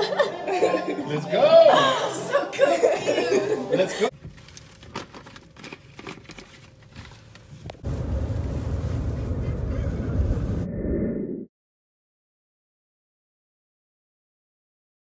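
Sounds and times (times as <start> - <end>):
car cabin road noise: 7.7 - 10.6.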